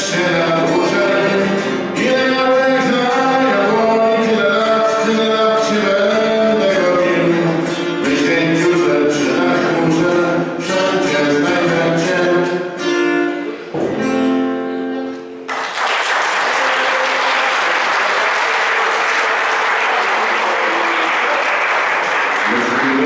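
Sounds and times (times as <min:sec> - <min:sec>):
man singing: 0:00.0 - 0:12.9
acoustic guitar: 0:00.0 - 0:15.7
audience applause: 0:15.5 - 0:23.0.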